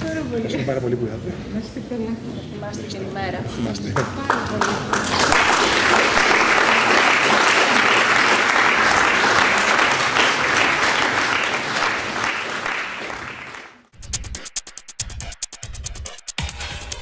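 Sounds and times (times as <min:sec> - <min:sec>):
audience applauding: 0:03.9 - 0:13.9.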